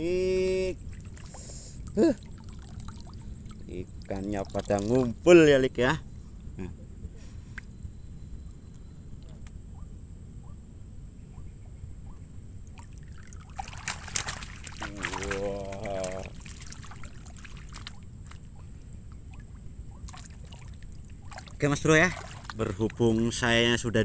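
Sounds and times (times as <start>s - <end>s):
low rumble of wind and water: 0.0s - 24.0s
water splashing and pouring: 0.9s - 5.2s, 12.7s - 18.6s, 19.3s - 23.0s.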